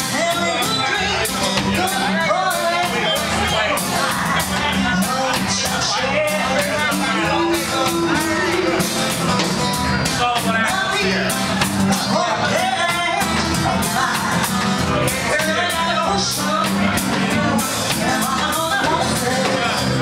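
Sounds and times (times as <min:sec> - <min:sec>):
woman singing into a microphone: 0:00.0 - 0:09.0, 0:10.4 - 0:20.0
reggae band guitars and drums: 0:00.0 - 0:20.0.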